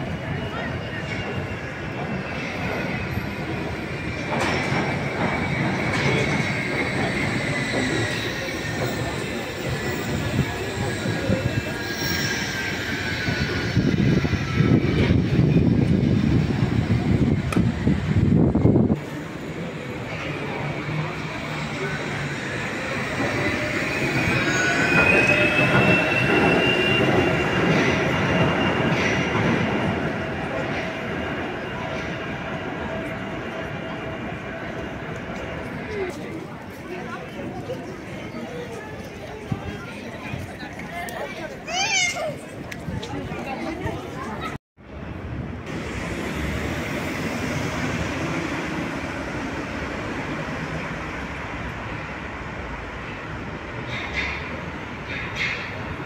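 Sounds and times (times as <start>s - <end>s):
high wheel squeal: 0.0s - 15.7s, 19.7s - 32.1s
monorail wheels rumbling: 0.0s - 56.0s.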